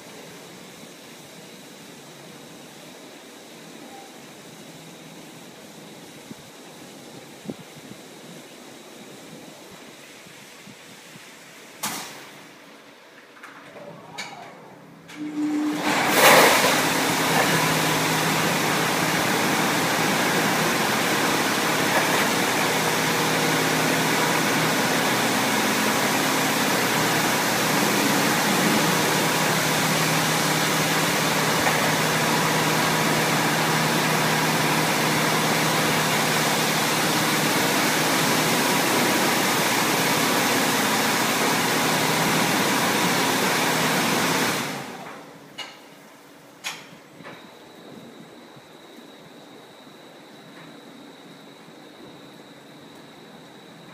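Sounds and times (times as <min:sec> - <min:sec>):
high-pressure water spray hiss: 0:00.0 - 0:12.9, 0:15.4 - 0:45.4.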